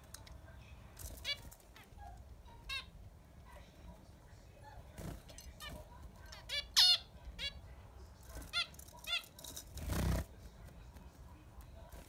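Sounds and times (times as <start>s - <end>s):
wings flapping: 9.6s - 10.3s.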